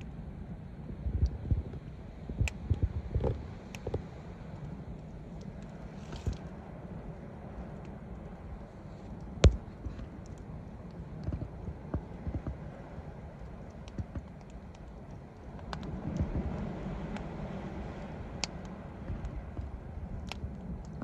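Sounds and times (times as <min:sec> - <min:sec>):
low rumble: 0:00.0 - 0:21.0
log fire crackling and popping: 0:07.2 - 0:21.0.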